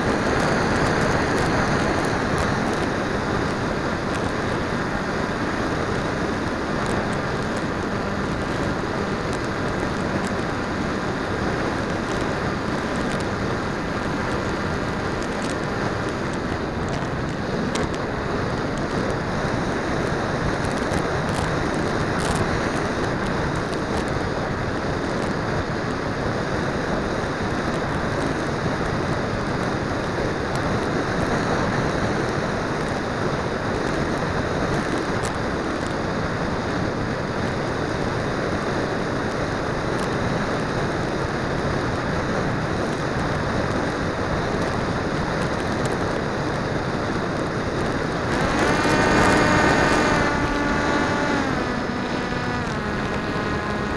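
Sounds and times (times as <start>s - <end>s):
air rushing over microphone: 42.6s - 53.9s.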